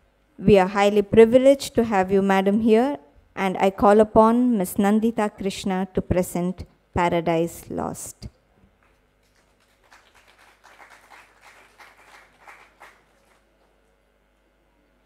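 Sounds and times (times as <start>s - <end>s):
audience applauding faintly: 8.8s - 14.0s.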